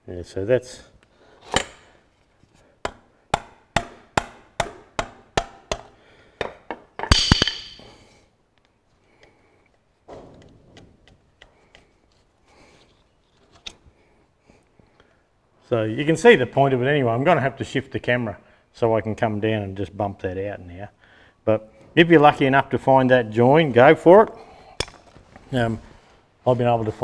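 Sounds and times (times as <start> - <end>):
clattering metal clash: 7.1 - 7.9.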